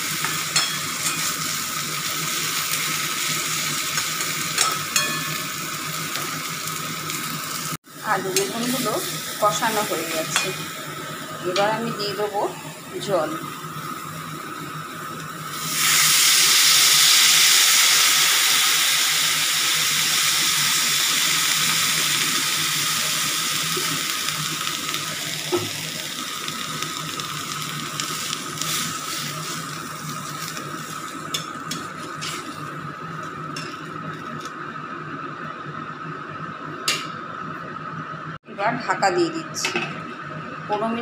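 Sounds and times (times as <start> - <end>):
water sizzling in hot oil: 0.0 - 34.5.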